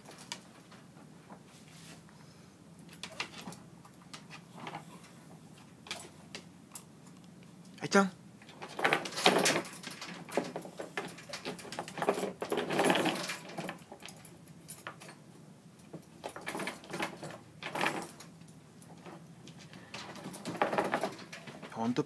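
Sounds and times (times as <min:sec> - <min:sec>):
metal chain rattling on floorboards: 0:08.4 - 0:21.9.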